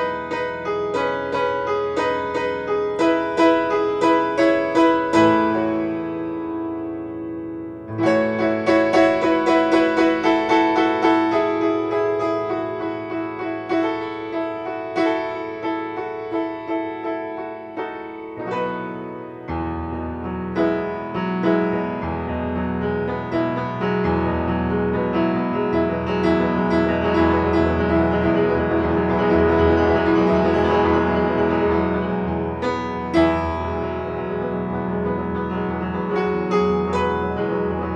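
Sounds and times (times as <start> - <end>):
low piano bass notes: 0.0 - 37.9
solo piano playing: 0.0 - 37.9.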